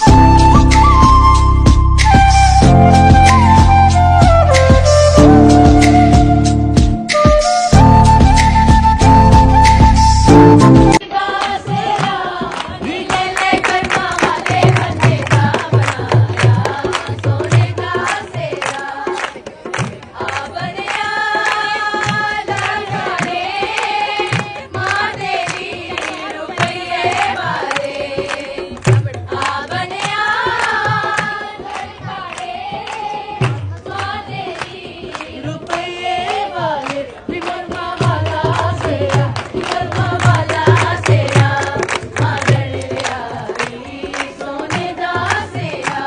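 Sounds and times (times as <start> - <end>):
low drum beat: 0.0 - 11.0.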